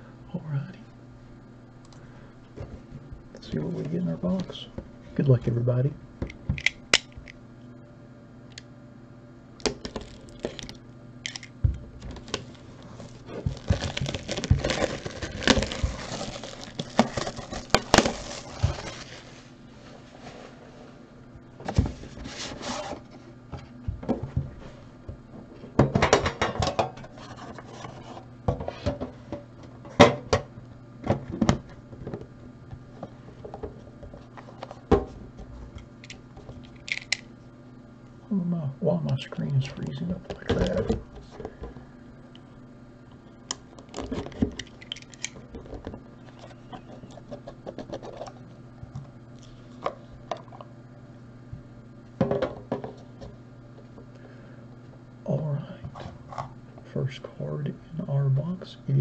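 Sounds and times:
plastic shrink-wrap crinkling: 0:09.7 - 0:19.5.

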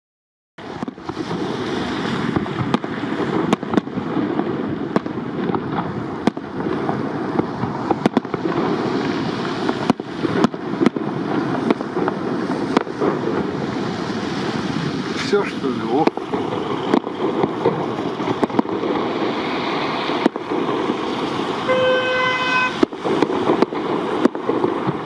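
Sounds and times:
steady rushing noise: 0:00.6 - 0:25.0
firework shell bangs: 0:15.9 - 0:25.0.

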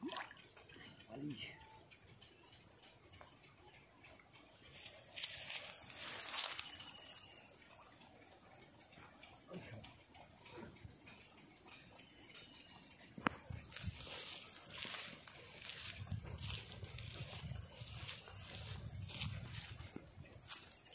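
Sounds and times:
water splashing: 0:00.0 - 0:00.9
high-pitched insect drone: 0:00.0 - 0:20.9.

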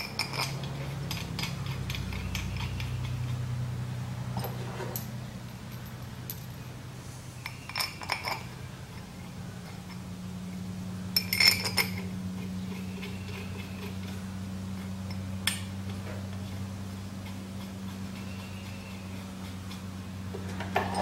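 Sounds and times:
metal screws clinking: 0:00.0 - 0:03.4, 0:07.5 - 0:08.5, 0:11.2 - 0:12.1
steady low hum: 0:00.0 - 0:21.0.

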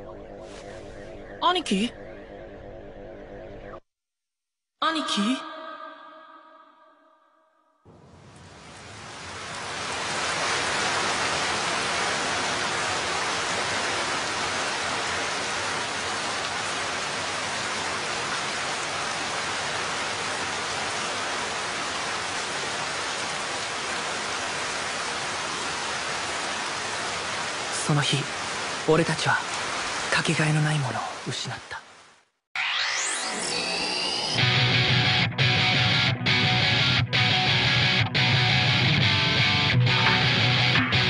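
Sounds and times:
steady rain hiss: 0:07.9 - 0:32.3.

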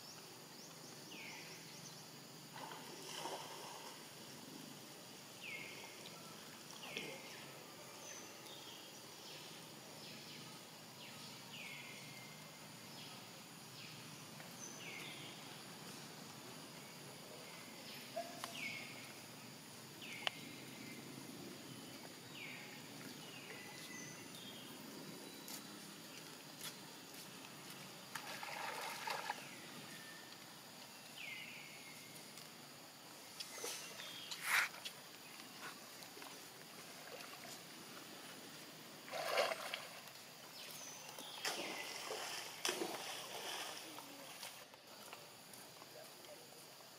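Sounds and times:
steady outdoor hiss: 0:00.0 - 0:46.9
water splashing and sloshing: 0:02.5 - 0:04.4, 0:27.6 - 0:29.9, 0:34.6 - 0:45.2.

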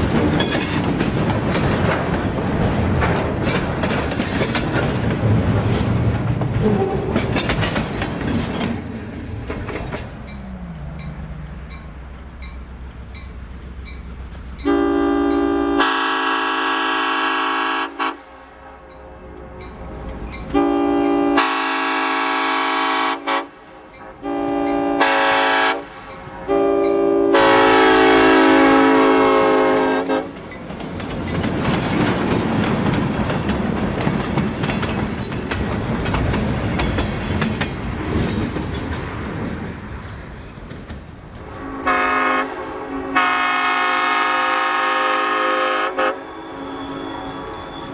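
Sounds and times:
wheels clattering over rail joints: 0:00.0 - 0:14.7, 0:30.3 - 0:41.7
locomotive air horn blasts: 0:14.6 - 0:19.4, 0:20.5 - 0:30.3, 0:41.5 - 0:47.9.

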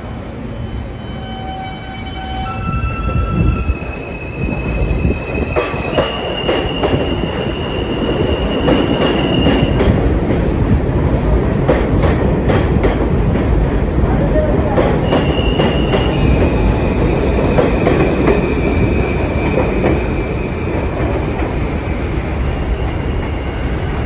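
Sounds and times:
train wheels clacking on track: 0:04.6 - 0:21.6.

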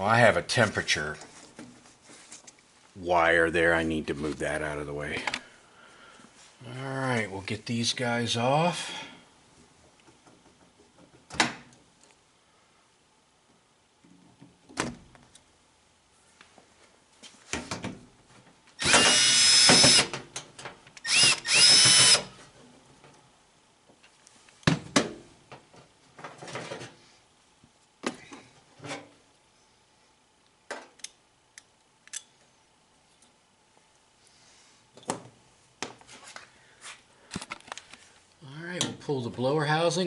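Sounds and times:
cordless drill whining: 0:18.8 - 0:20.1, 0:21.0 - 0:22.3
screws and tool clicking: 0:21.0 - 0:22.2.

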